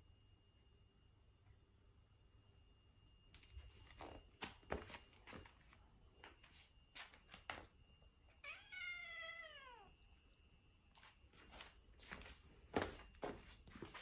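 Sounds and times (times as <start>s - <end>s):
cat meowing: 8.4s - 10.0s.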